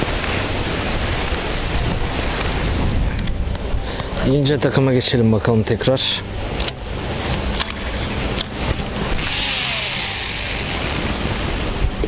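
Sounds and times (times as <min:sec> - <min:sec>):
wind buffeting microphone: 0:00.0 - 0:05.4, 0:06.2 - 0:12.0.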